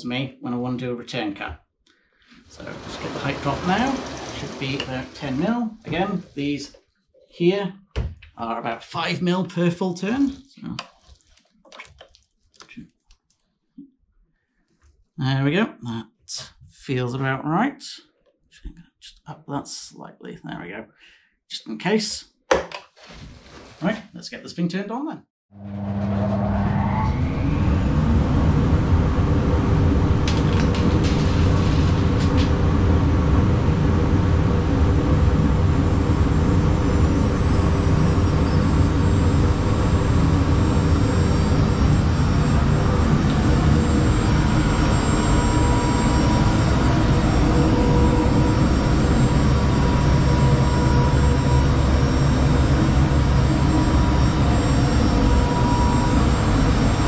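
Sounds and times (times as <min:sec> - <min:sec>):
dust extraction rush: 0:02.4 - 0:06.8, 0:26.0 - 0:57.0
spindle motor whine: 0:02.5 - 0:06.6, 0:25.6 - 0:57.0.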